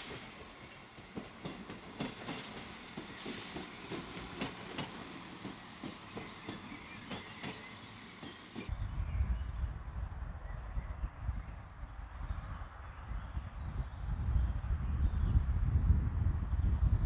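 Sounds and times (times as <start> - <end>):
railcar wheels clicking on rail joints: 0.0 - 8.7
air hiss: 2.4 - 4.4.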